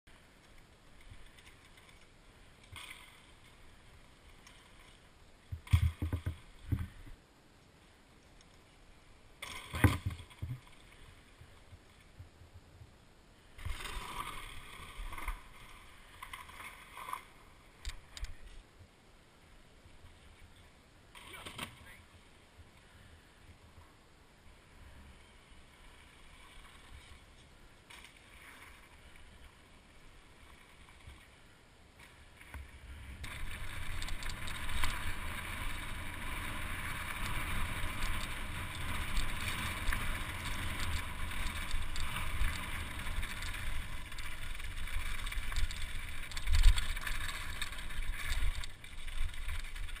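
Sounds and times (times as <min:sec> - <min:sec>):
bike tyres rumbling and rattling: 0:32.6 - 0:50.0.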